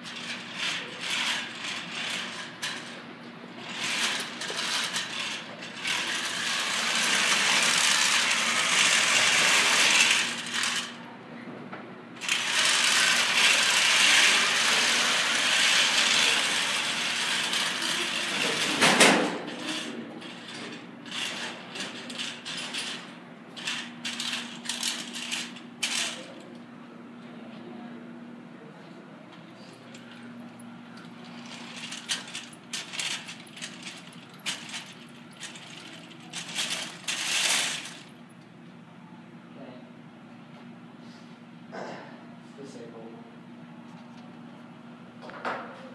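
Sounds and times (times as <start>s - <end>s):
robot drive motors whirring: 12.2s - 18.4s.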